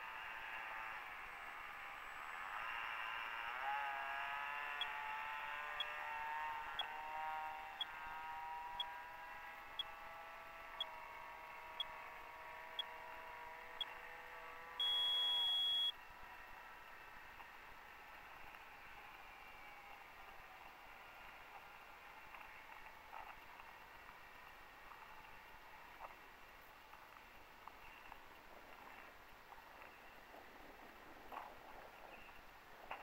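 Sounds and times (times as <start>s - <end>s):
electric motor and propeller whine: 0.0s - 22.8s
electronic beeper: 14.8s - 16.0s.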